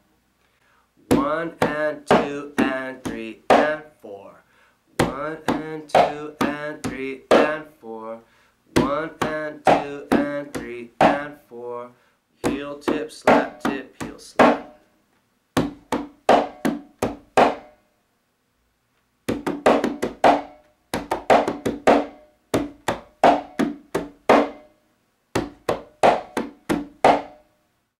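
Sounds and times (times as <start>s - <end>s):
conga drum played with hands: 1.1s - 3.8s, 5.0s - 7.6s, 8.8s - 11.3s, 12.4s - 14.8s, 15.6s - 17.8s, 19.3s - 24.7s, 25.3s - 27.5s.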